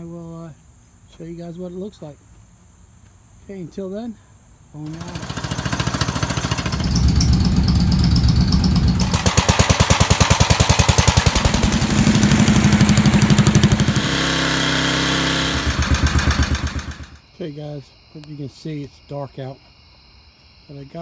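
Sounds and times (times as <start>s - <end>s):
small gasoline engines running: 4.8s - 17.2s.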